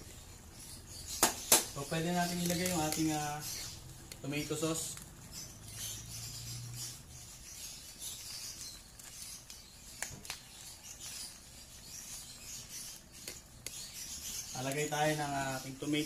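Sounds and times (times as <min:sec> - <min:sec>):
plastic pouch crinkling: 0:02.1 - 0:05.2, 0:08.0 - 0:13.9.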